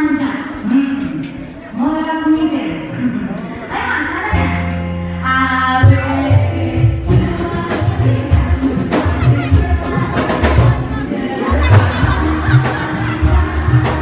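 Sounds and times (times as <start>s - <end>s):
woman singing into a microphone: 2.1s - 14.0s
live music with bass beat: 4.3s - 14.0s.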